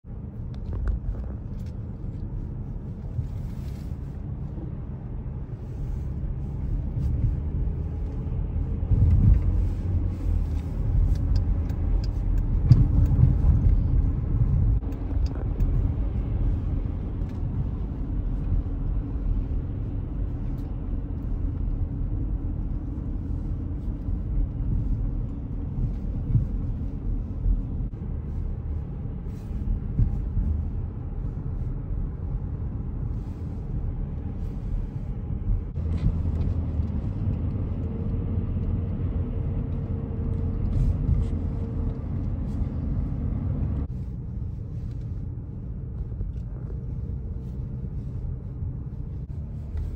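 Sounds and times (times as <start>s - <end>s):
car engine and tyre rumble: 0.0s - 49.9s.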